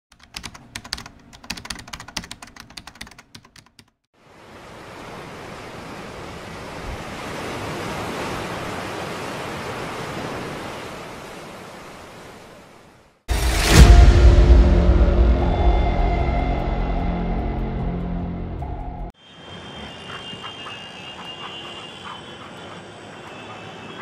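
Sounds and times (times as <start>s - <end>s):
rapid keyboard typing: 0.1s - 4.0s
ocean surf: 4.2s - 17.8s, 19.2s - 24.0s.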